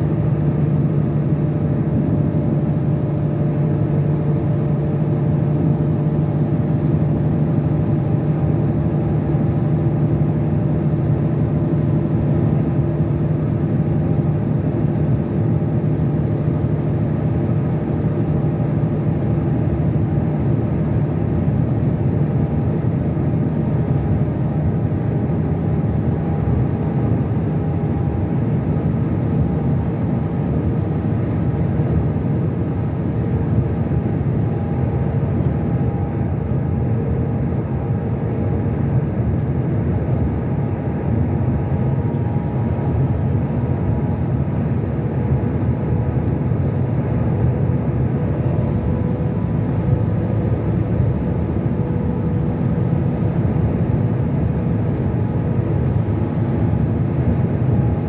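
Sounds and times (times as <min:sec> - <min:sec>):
vehicle road and engine noise: 0:00.0 - 0:58.0.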